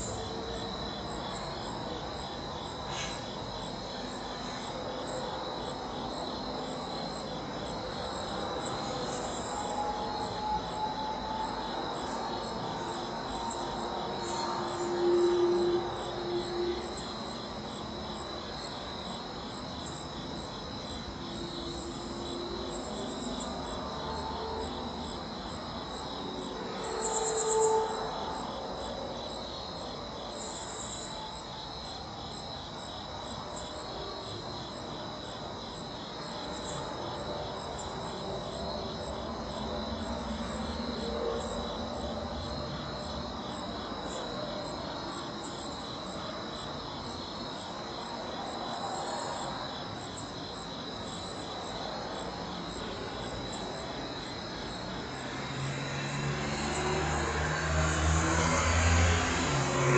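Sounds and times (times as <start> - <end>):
crickets trilling: 0.0 - 59.9.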